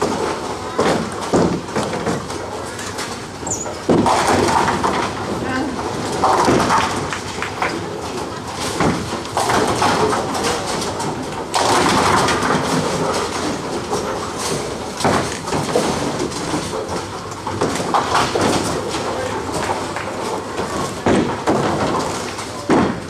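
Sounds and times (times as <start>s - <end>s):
sharp knocks: 0.0s - 2.4s, 3.7s - 5.2s, 8.7s - 10.4s, 21.0s - 23.0s
bowling balls rolling: 0.0s - 23.0s
bowling pins clattering: 0.0s - 23.0s.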